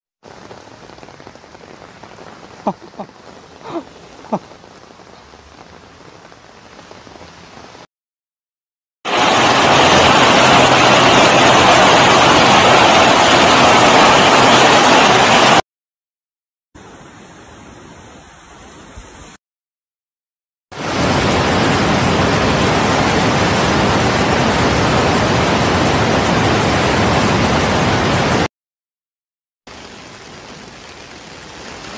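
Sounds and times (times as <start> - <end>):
floodwater rushing down stairs: 0.2 - 7.9, 9.1 - 15.6
heavy rain: 0.2 - 7.9, 9.1 - 15.6, 20.7 - 28.5, 29.7 - 31.9
water splashing from storm drain: 9.1 - 15.6.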